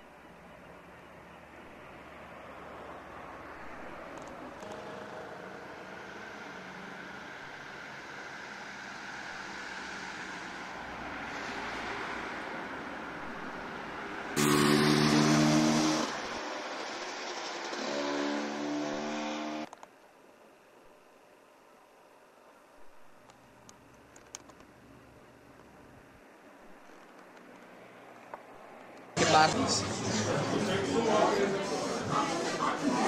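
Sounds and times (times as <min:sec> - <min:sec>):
motor vehicle engines running: 0:00.0 - 0:19.7
loud engine: 0:14.4 - 0:19.7.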